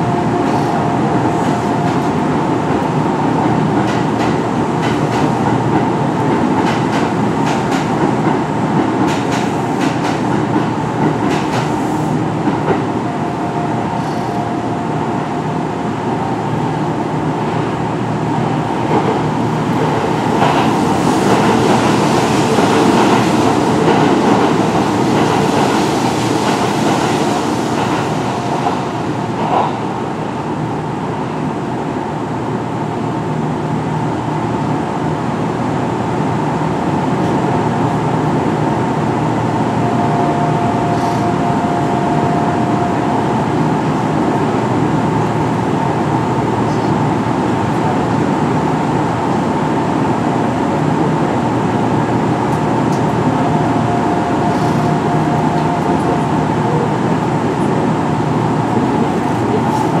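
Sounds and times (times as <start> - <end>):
train wheel and motor noise: 0.0 - 60.0.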